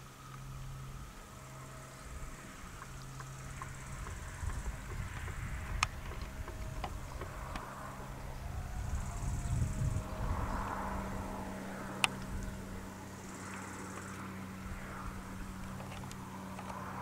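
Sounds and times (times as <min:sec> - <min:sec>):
distant train rumble: 0:00.0 - 0:17.0
faint steady tone: 0:00.0 - 0:17.0
small clicks: 0:02.6 - 0:07.7, 0:13.4 - 0:14.2, 0:15.6 - 0:17.0.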